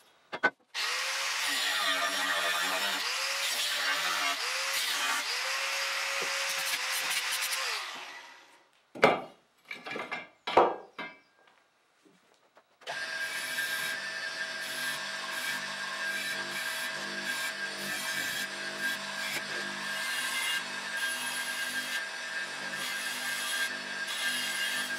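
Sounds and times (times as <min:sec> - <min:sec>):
angle grinder cutting steel: 0:00.8 - 0:08.5, 0:12.9 - 0:24.9.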